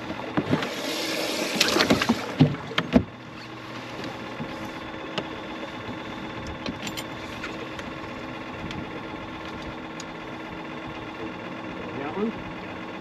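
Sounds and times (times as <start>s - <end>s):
boat motor humming: 0.0s - 13.0s.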